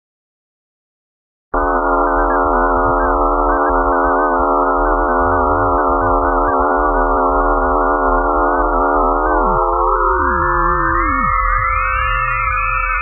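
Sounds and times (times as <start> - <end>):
synthesized drone: 1.6 - 13.0.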